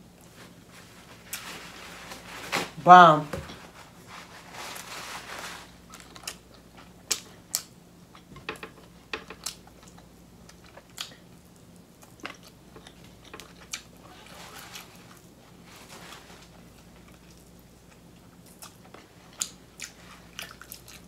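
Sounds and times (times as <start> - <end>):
chewing: 5.9 - 8.3, 9.3 - 15.2, 16.5 - 21.0.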